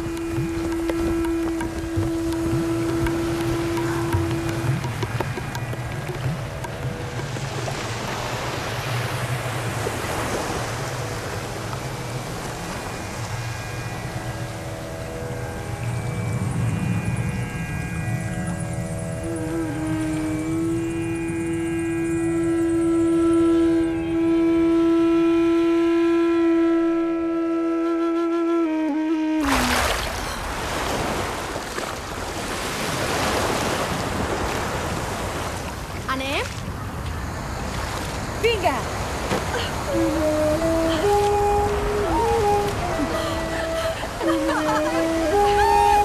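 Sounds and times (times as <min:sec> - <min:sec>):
long held musical note: 0:00.0 - 0:05.6, 0:18.9 - 0:30.0, 0:39.8 - 0:46.0
surf washing onto beach: 0:00.0 - 0:17.3, 0:29.4 - 0:46.0
wind: 0:00.0 - 0:46.0.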